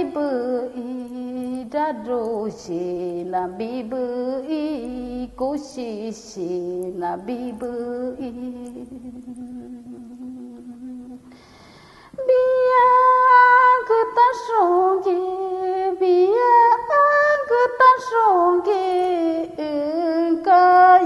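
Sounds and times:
woman singing unaccompanied: 0:00.0 - 0:11.4, 0:12.1 - 0:21.0
woman humming: 0:08.5 - 0:11.3
breathy hiss: 0:11.2 - 0:12.2.

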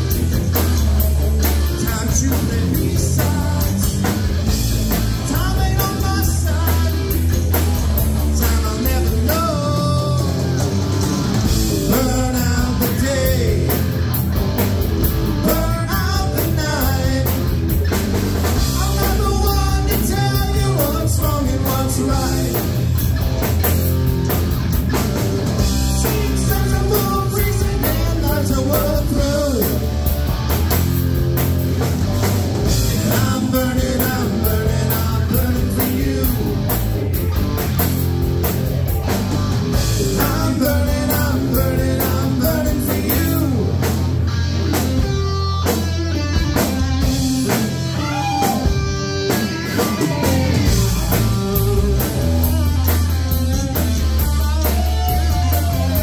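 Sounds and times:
drum kit: 0:00.0 - 0:56.0
electric bass: 0:00.0 - 0:56.0
electric guitars: 0:00.0 - 0:56.0
man singing: 0:01.6 - 0:04.2, 0:05.2 - 0:07.6, 0:08.2 - 0:10.8, 0:11.7 - 0:14.0, 0:15.4 - 0:17.7, 0:18.6 - 0:22.9, 0:25.8 - 0:29.9, 0:32.7 - 0:36.9, 0:39.8 - 0:44.0, 0:50.0 - 0:52.8, 0:54.2 - 0:56.0.

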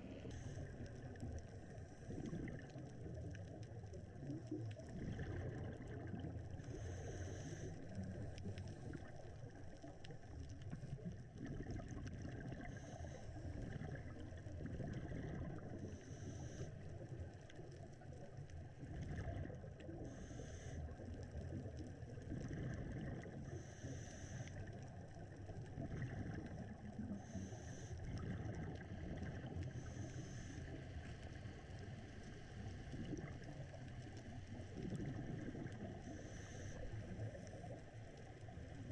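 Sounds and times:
muffled underwater rumble: 0:00.0 - 0:38.9.

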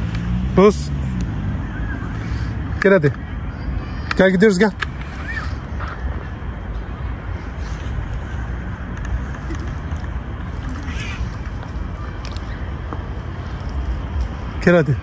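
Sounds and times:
outdoor rumble: 0:00.0 - 0:15.0.

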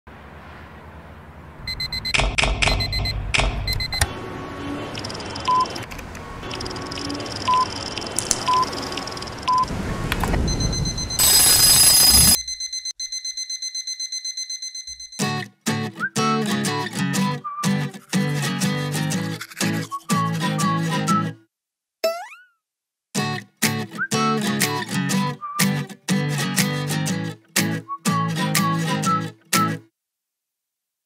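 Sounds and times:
city traffic din: 0:00.1 - 0:12.4
digital alarm clock beeping: 0:01.7 - 0:04.1, 0:04.9 - 0:05.8, 0:06.4 - 0:09.7, 0:10.4 - 0:15.3.

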